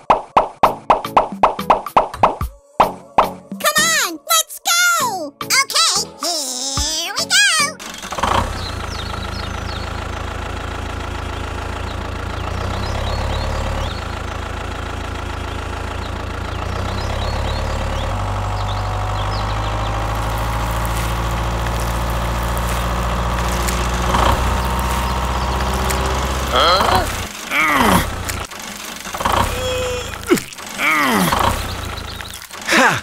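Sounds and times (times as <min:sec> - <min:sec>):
tractor engine rumbling: 0:07.0 - 0:33.0.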